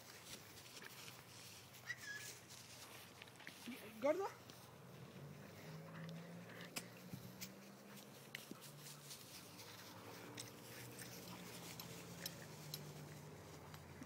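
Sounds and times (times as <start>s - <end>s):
soft ticks: 10.3s - 13.9s.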